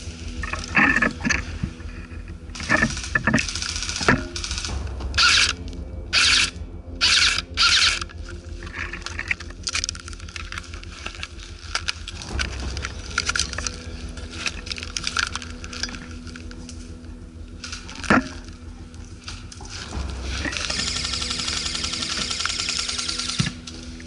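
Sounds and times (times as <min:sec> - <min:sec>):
gear clicking and rattling: 0:00.1 - 0:24.0
crunching footsteps: 0:08.1 - 0:20.9.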